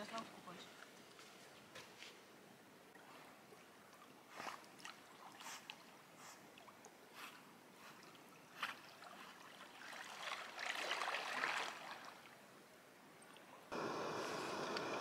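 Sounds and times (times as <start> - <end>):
water splashing: 7.9 - 12.4
steady hiss: 13.7 - 15.0.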